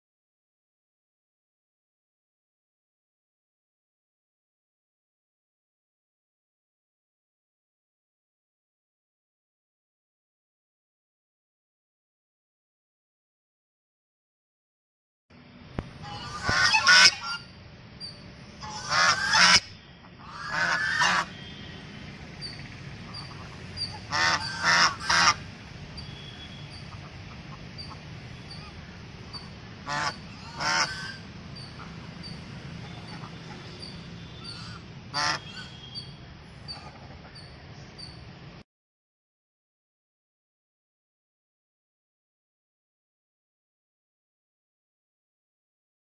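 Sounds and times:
low background hum: 0:15.4 - 0:38.6
geese honking: 0:16.0 - 0:17.5, 0:18.6 - 0:37.5.

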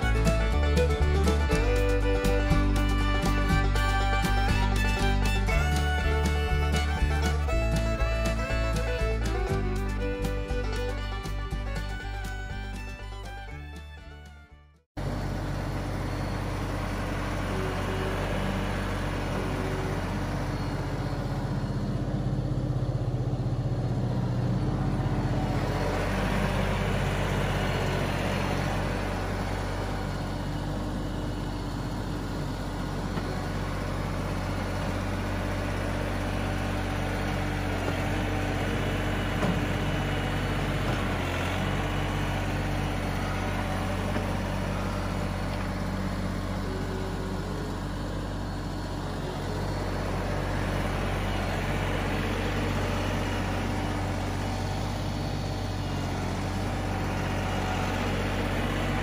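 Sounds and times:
loader bucket working loose soil: 0:00.0 - 0:14.4, 0:15.0 - 0:59.0
tractor diesel engine under load: 0:00.0 - 0:59.0.

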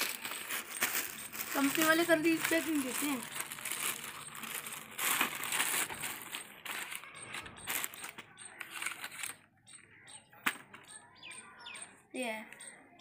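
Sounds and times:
plastic packet rustling: 0:00.0 - 0:09.4
clicks and rattles of handling: 0:00.0 - 0:11.0.

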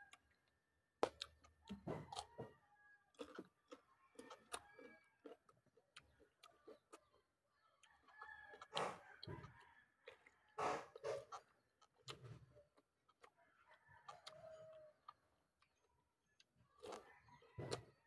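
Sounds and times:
person chewing: 0:00.1 - 0:02.4, 0:03.1 - 0:13.4, 0:14.1 - 0:17.9
rooster crowing: 0:04.2 - 0:05.1.

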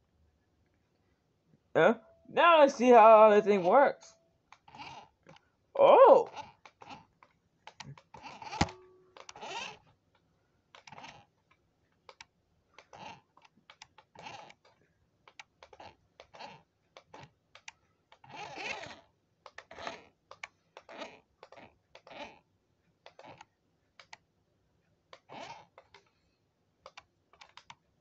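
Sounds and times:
toy car electric motor buzzing: 0:09.2 - 0:09.8, 0:12.8 - 0:13.2, 0:14.1 - 0:14.7, 0:15.6 - 0:17.2, 0:18.2 - 0:20.1, 0:20.8 - 0:22.4, 0:23.1 - 0:23.5, 0:25.2 - 0:25.9.

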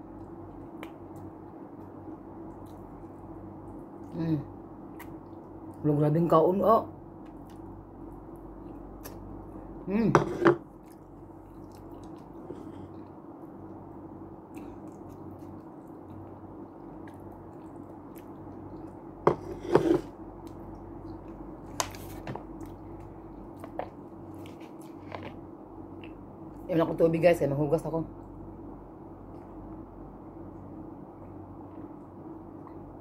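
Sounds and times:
steady low hum: 0:00.0 - 0:33.0
person chewing food: 0:00.1 - 0:04.1, 0:10.6 - 0:26.3.

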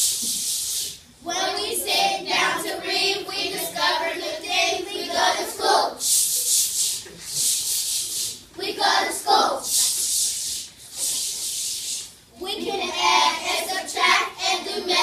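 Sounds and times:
hissing ch ch ch rhythm: 0:00.0 - 0:01.2, 0:05.1 - 0:15.0
children singing together: 0:01.3 - 0:06.0, 0:08.6 - 0:09.7, 0:12.4 - 0:15.0.

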